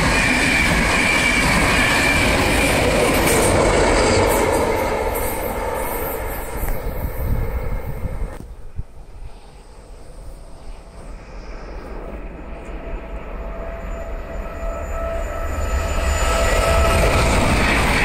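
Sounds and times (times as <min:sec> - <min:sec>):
train approaching: 0:00.0 - 0:18.0
wind rumble on microphone: 0:06.0 - 0:13.1.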